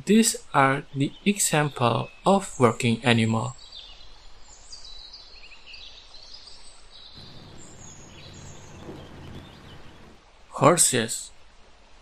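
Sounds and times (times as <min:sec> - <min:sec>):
small birds chirping: 0:03.6 - 0:10.2
low steady rumble: 0:07.2 - 0:10.2.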